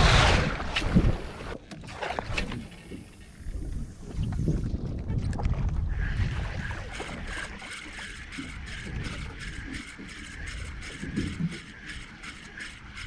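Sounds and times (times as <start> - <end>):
low boat rumble: 0.0 - 13.0
fishing reel whirring: 6.0 - 13.0.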